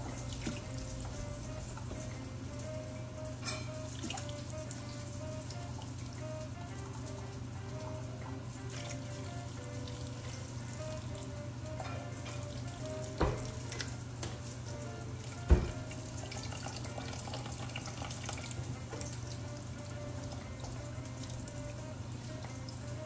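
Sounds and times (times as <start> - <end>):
cup knocking against sink: 13.2 - 13.6, 15.5 - 15.9
tap running into steel sink: 13.2 - 14.4, 15.5 - 15.9.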